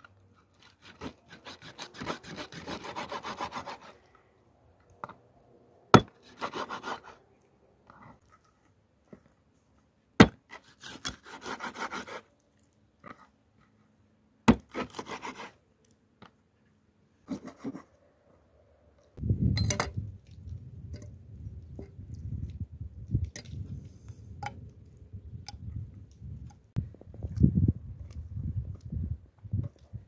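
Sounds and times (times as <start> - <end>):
knife scraping cutting board: 14.7 - 15.5.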